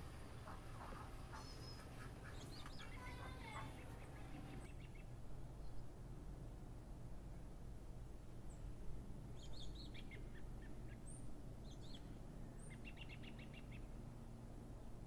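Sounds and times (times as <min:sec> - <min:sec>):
small birds chirping: 0:00.3 - 0:05.9
bird trill: 0:01.3 - 0:04.6.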